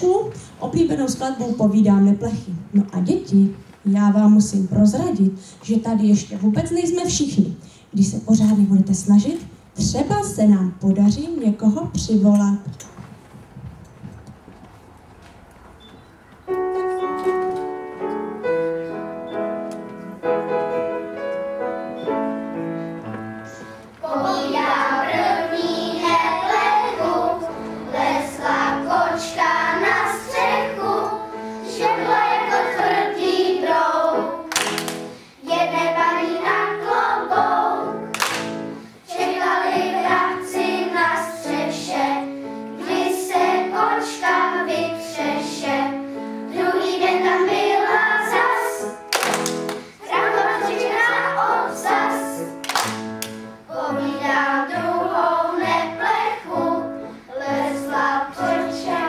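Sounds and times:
piano chords: 0:13.4 - 0:59.0
children's choir singing: 0:22.0 - 0:59.0.

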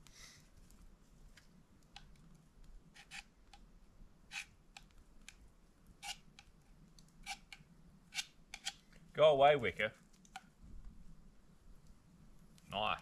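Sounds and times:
campfire crackling and popping: 0:01.4 - 0:03.8, 0:04.6 - 0:13.0.

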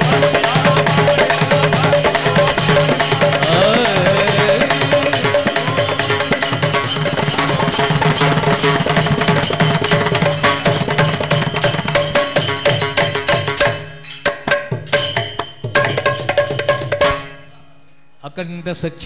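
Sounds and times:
harmonium holding tones: 0:00.0 - 0:11.2
percussion beat: 0:00.0 - 0:17.5.

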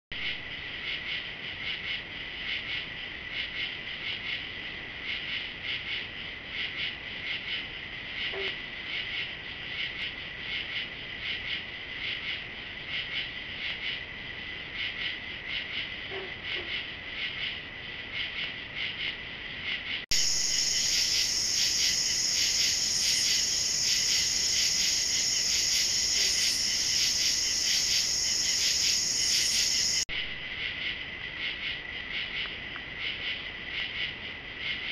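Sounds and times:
crickets and insects chirping: 0:00.2 - 0:34.9
high-pitched insect chorus: 0:19.7 - 0:34.9.

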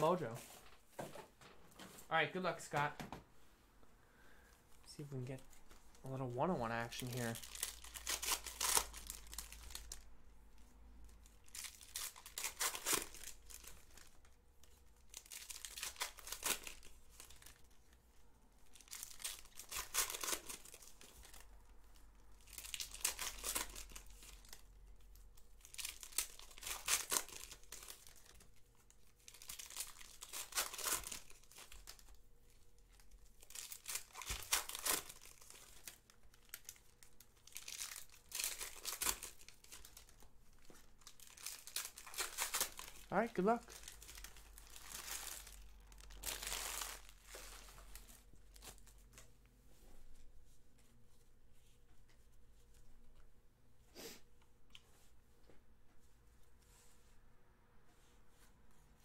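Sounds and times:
foil wrappers tearing and crinkling: 0:06.8 - 0:10.1, 0:11.4 - 0:17.7, 0:18.7 - 0:21.5, 0:22.3 - 0:25.0, 0:25.6 - 0:32.2, 0:33.3 - 0:48.9.

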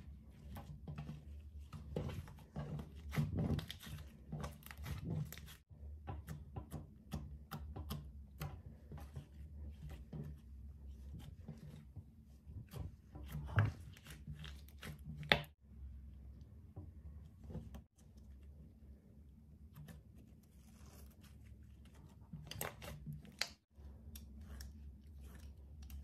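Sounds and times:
hands squelching slime: 0:19.8 - 0:26.0.

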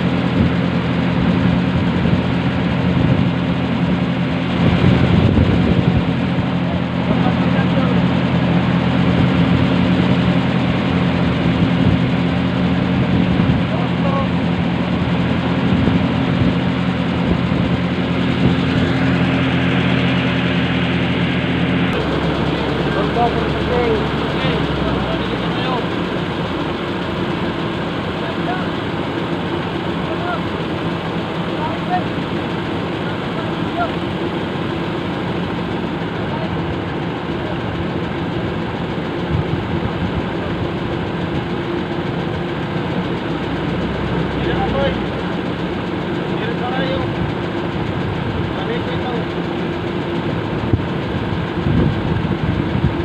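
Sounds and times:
boat engine humming: 0:00.0 - 0:53.0.

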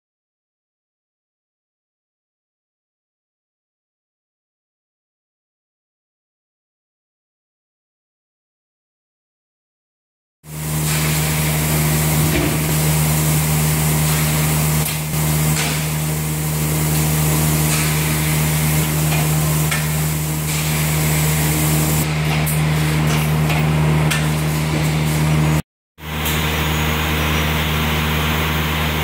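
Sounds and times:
machine hum with hiss: 0:10.5 - 0:29.0.

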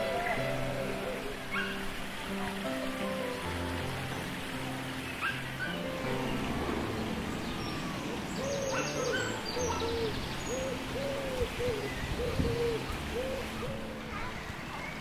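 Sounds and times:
bird hooting: 0:00.0 - 0:01.8, 0:07.8 - 0:14.0
steady rushing hiss: 0:00.0 - 0:15.0.

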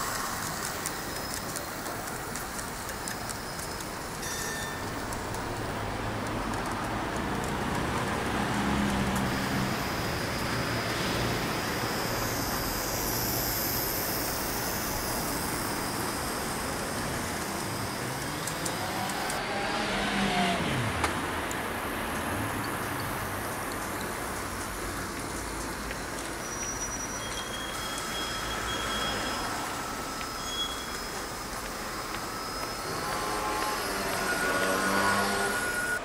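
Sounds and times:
model tram motors whirring: 0:00.0 - 0:36.0
motor whine: 0:08.5 - 0:21.7, 0:25.1 - 0:36.0.

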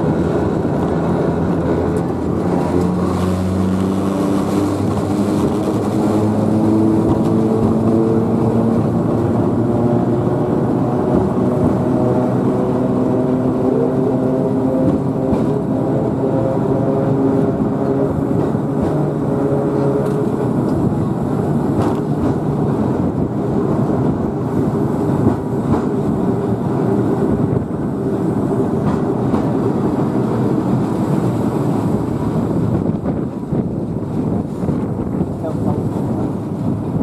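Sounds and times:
tram wheels rumbling: 0:00.0 - 0:37.0
wheels clicking on rails: 0:14.5 - 0:37.0.

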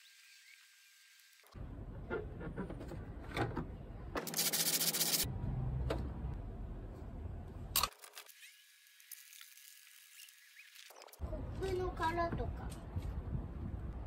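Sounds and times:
sanding block scraping: 0:04.3 - 0:05.3.

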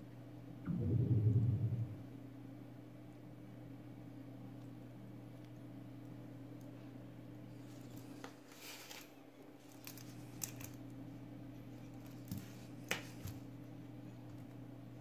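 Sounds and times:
steady low hum: 0:00.0 - 0:08.1.

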